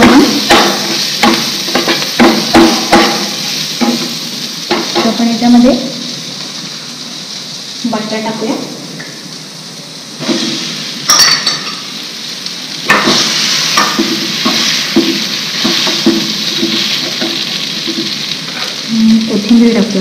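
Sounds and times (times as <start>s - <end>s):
spoon knocking against pan: 0.0s - 4.1s, 13.8s - 18.1s
spoon tapping and scraping pan: 0.0s - 5.2s, 12.9s - 18.8s
oil sizzling in a frying pan: 0.0s - 20.0s.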